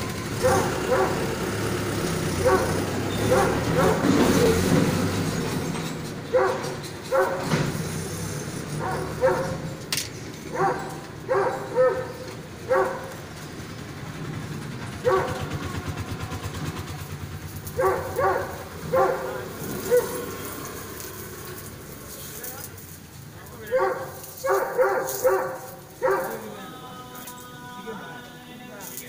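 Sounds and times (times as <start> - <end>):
dog barking: 0.4 - 1.4, 2.4 - 4.7, 6.3 - 7.6, 8.8 - 9.8, 10.5 - 13.3, 15.0 - 15.7, 17.7 - 20.4, 23.6 - 26.6.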